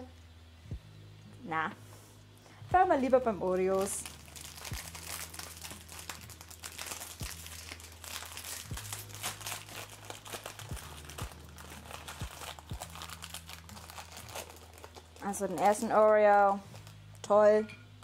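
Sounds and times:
low steady hum: 0:00.0 - 0:18.0
plastic packaging crinkling: 0:03.6 - 0:17.3.

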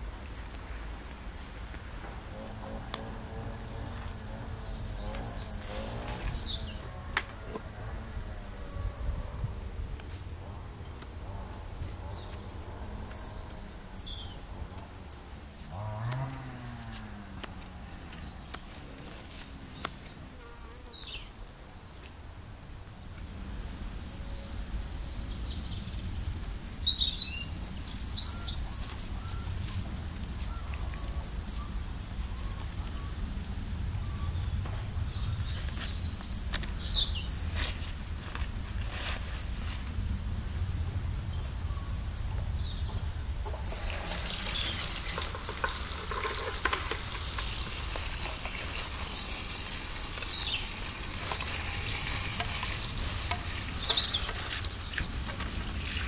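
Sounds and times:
songbirds chirping: 0:00.0 - 0:56.0
stems rustling into plastic bucket: 0:35.4 - 0:40.1, 0:43.3 - 0:56.0.

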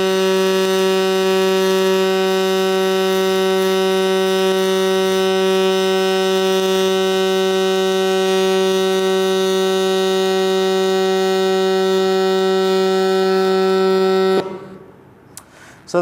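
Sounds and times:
welding arc humming: 0:00.0 - 0:14.8.

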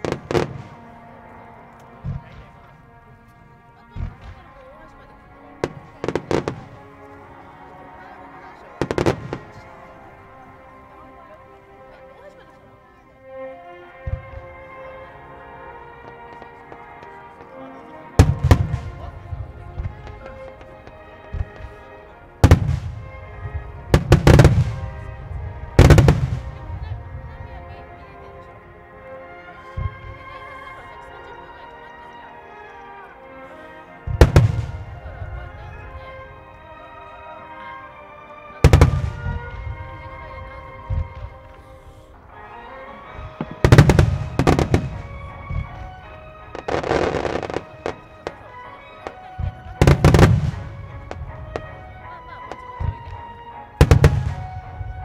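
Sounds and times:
fireworks bursting with bangs: 0:00.0 - 0:01.1, 0:03.9 - 0:07.2, 0:08.0 - 0:10.3, 0:14.0 - 0:14.6, 0:18.2 - 0:27.5, 0:34.0 - 0:36.6, 0:38.6 - 0:55.0
background music: 0:00.0 - 0:55.0.

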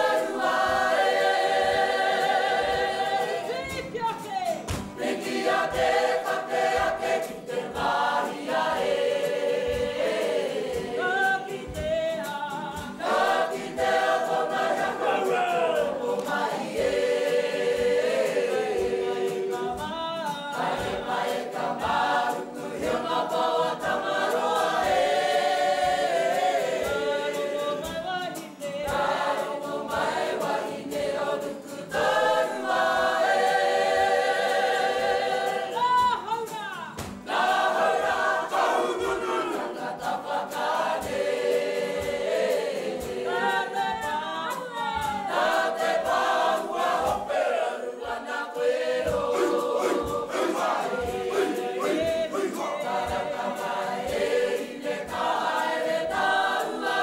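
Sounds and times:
group singing in unison: 0:00.0 - 0:57.0
low thudding beat: 0:48.0 - 0:55.4.

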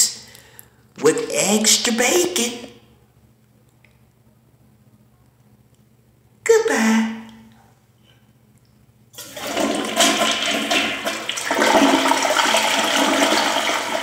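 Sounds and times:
toilet flushing: 0:09.2 - 0:14.0.

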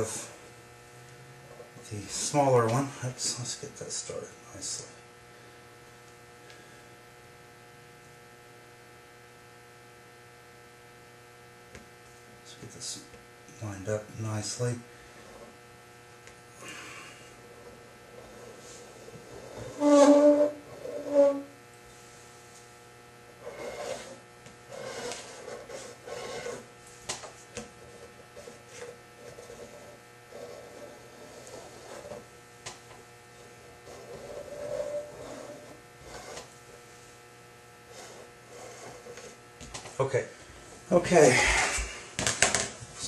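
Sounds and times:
electrical mains hum: 0:00.0 - 0:43.0
loud pitched squeaks: 0:19.7 - 0:21.5
metal point scratching sheet steel: 0:23.4 - 0:26.6.

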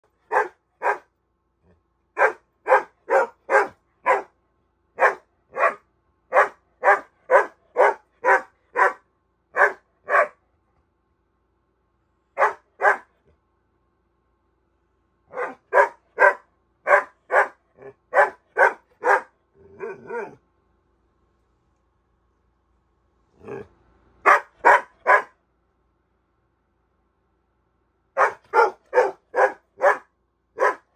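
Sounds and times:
puppy barking: 0:00.2 - 0:01.1, 0:02.2 - 0:04.4, 0:05.0 - 0:10.4, 0:12.4 - 0:13.2, 0:15.3 - 0:20.4, 0:24.2 - 0:25.4, 0:28.2 - 0:30.9
puppy grumbling: 0:19.5 - 0:20.4, 0:23.3 - 0:23.8.

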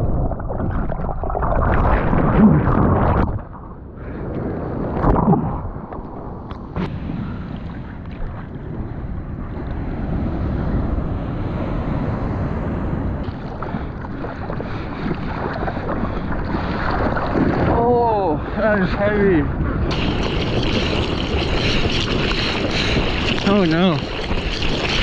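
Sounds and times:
wind buffeting microphone: 0:00.0 - 0:25.0
surf rushing: 0:06.7 - 0:25.0
water sloshing against housing: 0:19.8 - 0:25.0.

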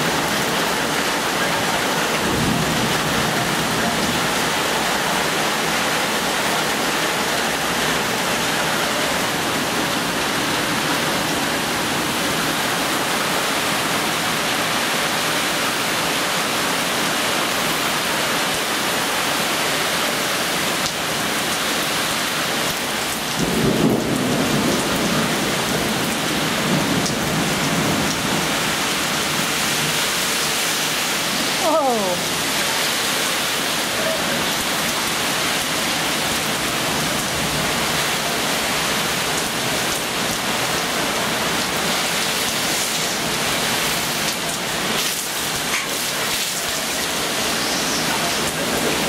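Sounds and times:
heavy rain: 0:00.0 - 0:49.0
thunder rumbling: 0:00.1 - 0:13.6, 0:23.1 - 0:30.0.

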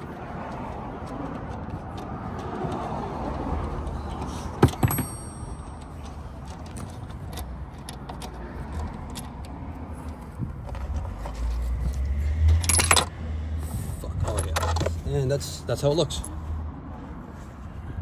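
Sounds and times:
wrench clinking on metal: 0:04.6 - 0:08.3.

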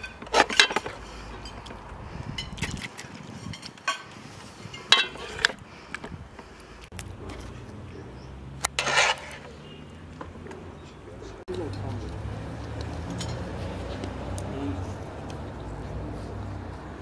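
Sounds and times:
utensils clinking on dishes: 0:00.0 - 0:05.5.

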